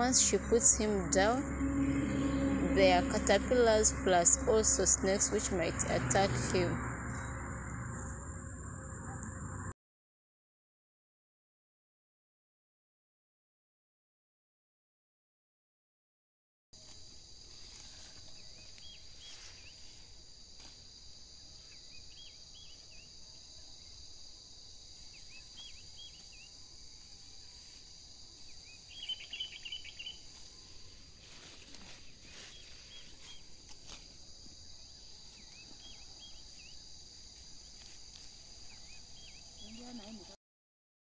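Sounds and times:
insects chirring: 0.0s - 9.7s, 16.8s - 40.4s
bird chirping: 21.6s - 23.1s, 25.1s - 26.6s, 28.5s - 30.4s, 32.0s - 33.5s, 34.7s - 36.8s, 38.6s - 40.3s.

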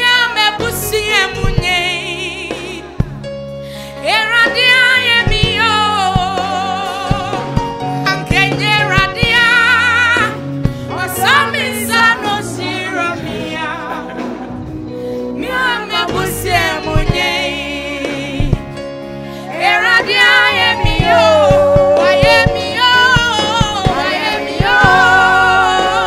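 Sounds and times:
woman singing gospel: 0.0s - 3.0s, 4.0s - 14.6s, 15.3s - 18.8s, 19.4s - 26.0s
instrumental accompaniment: 0.0s - 26.0s.

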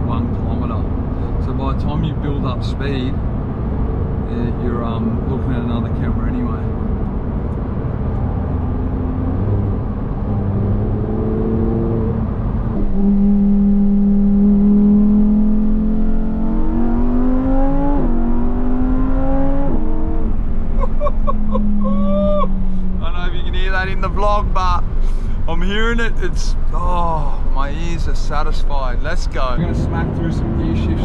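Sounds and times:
car engine accelerating hard: 0.0s - 25.8s, 29.1s - 31.0s.

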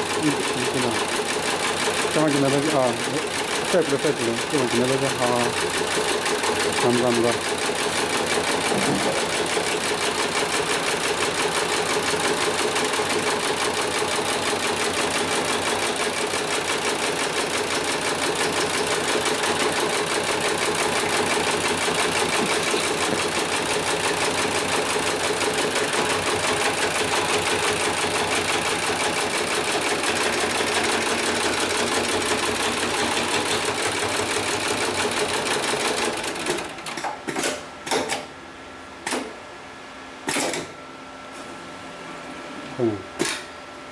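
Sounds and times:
sewing machine stitching: 0.0s - 38.2s.

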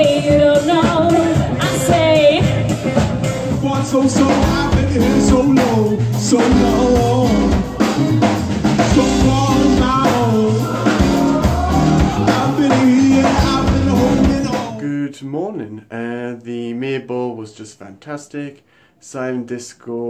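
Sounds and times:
drum kit: 0.0s - 14.8s
electric guitar: 0.0s - 14.8s
keyboard: 0.0s - 14.8s
person singing: 0.0s - 15.2s.

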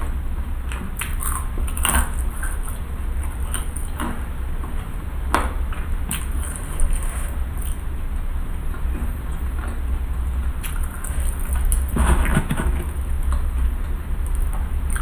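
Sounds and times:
steady low hum: 0.0s - 15.0s
mouth clicks and chewing: 0.7s - 4.2s, 6.1s - 7.9s, 10.6s - 15.0s.

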